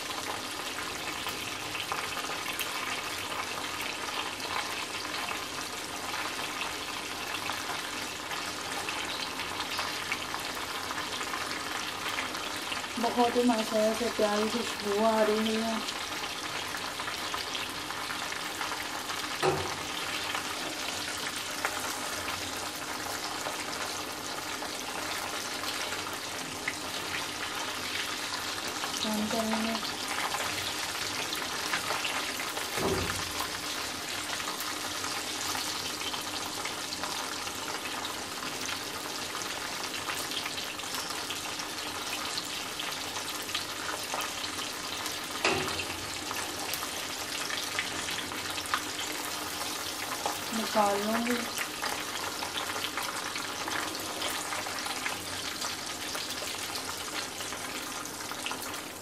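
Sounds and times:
chicken sizzling in oil: 0.0 - 59.0
metal tongs knocking on pan: 19.4 - 19.8, 45.4 - 46.0.

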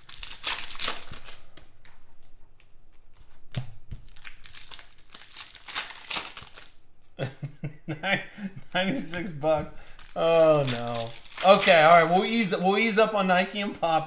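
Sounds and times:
foil pack crinkling and tearing: 0.0 - 2.3, 4.0 - 7.1, 9.7 - 13.0.

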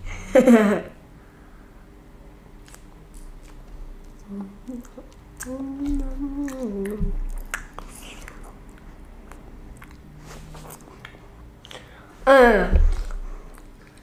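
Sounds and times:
closed-mouth hum: 0.0 - 14.0
child chewing with wet mouth clicks: 2.6 - 11.9, 13.1 - 14.0.

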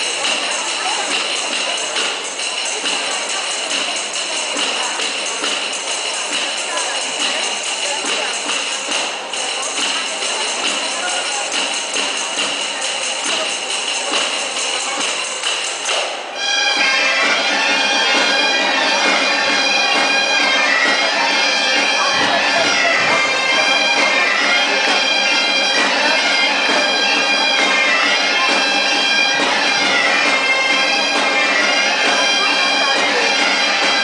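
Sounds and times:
tambourine jingling: 0.0 - 16.3
bagpipes playing over drone: 16.4 - 34.0.

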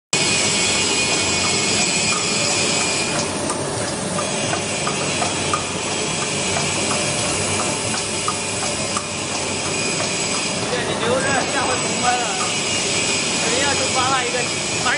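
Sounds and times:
machine hiss and whine: 0.2 - 14.9
mechanical ticks: 1.4 - 10.6, 12.4 - 12.6.

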